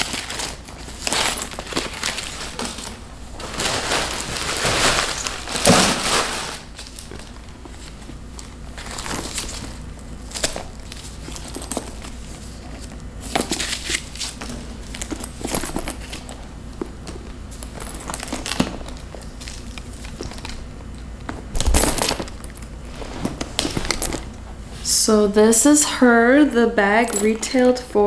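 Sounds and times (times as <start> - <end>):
bag bumping down: 3.5 - 6.6.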